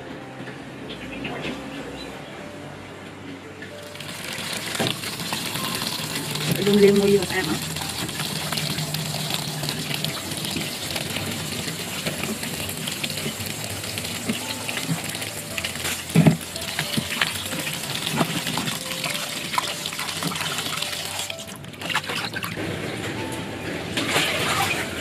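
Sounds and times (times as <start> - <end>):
tap water splashing into colander: 3.8 - 22.6.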